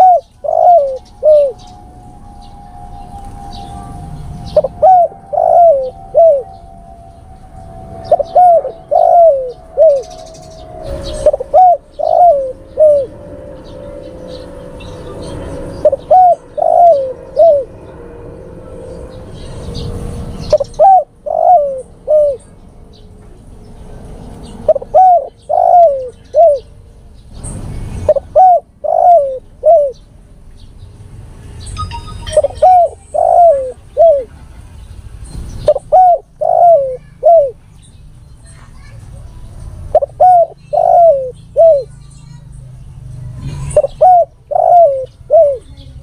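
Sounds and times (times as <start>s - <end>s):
dove cooing: 0.0s - 6.9s, 7.7s - 13.9s, 15.0s - 17.8s, 20.4s - 22.6s, 24.6s - 26.8s, 28.1s - 30.0s, 32.4s - 34.6s, 35.7s - 37.7s, 39.9s - 42.0s, 43.5s - 46.0s.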